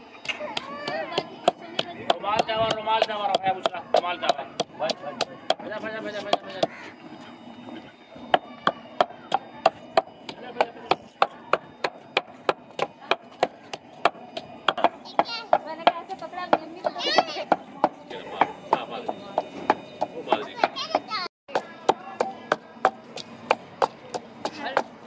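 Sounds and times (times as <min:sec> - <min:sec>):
pestle pounding in wooden mortar: 0:00.5 - 0:06.9, 0:08.3 - 0:25.0.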